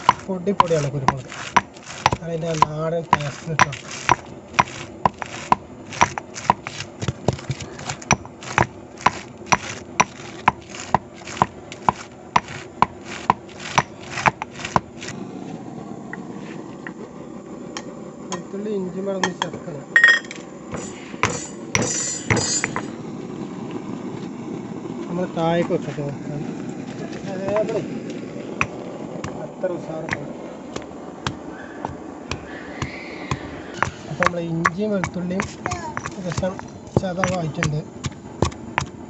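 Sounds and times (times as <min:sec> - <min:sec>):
pestle pounding in stone mortar: 0:00.0 - 0:15.1, 0:20.0 - 0:22.9, 0:27.4 - 0:27.7, 0:28.6 - 0:29.4, 0:30.0 - 0:39.0
stone scraping on stone: 0:00.0 - 0:15.2, 0:20.0 - 0:22.9, 0:30.0 - 0:38.9.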